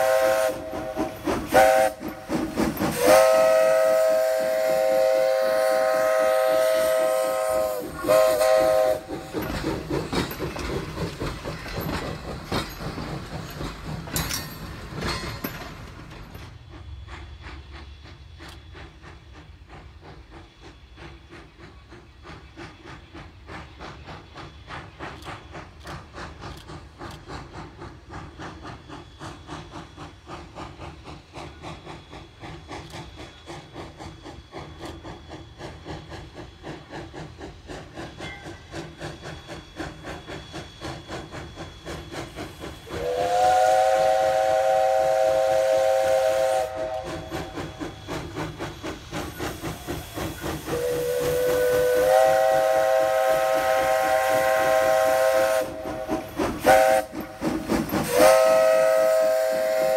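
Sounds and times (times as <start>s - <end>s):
locomotive chime whistle: 0.0s - 9.6s, 38.2s - 59.9s
steam locomotive exhaust chuffs: 0.0s - 59.9s.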